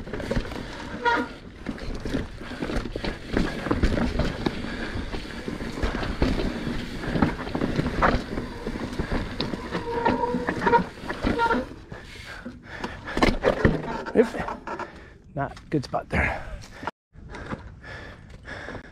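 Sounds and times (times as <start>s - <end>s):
bike knocks and rattles: 0.0s - 11.8s, 12.7s - 14.9s
bike tyres on rocky dirt: 0.0s - 15.1s.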